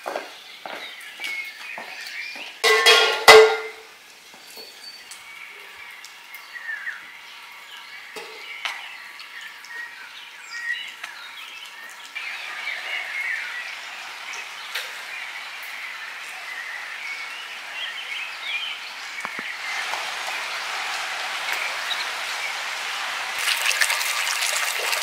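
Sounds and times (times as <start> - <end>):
metal basin clanging: 2.6 - 3.9.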